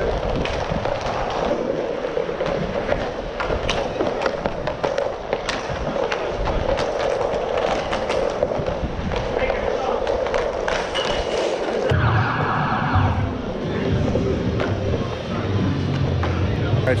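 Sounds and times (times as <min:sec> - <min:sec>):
skate wheels rolling on tiles: 0:00.0 - 0:11.9
sticks and puck clacking: 0:00.0 - 0:11.9.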